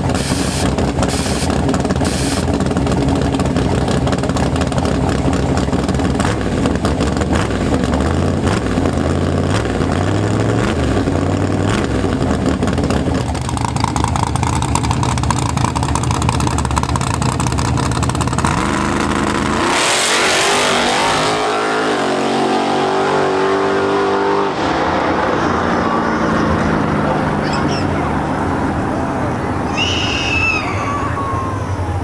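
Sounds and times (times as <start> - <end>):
drag car engine crackling and accelerating: 0.0 - 32.0.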